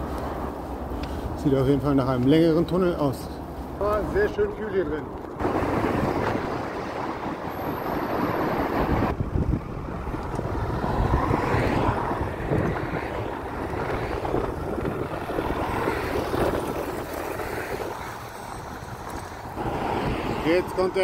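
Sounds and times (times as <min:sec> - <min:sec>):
traffic noise in tunnel: 0:00.0 - 0:21.0
wind noise on microphone: 0:05.2 - 0:21.0.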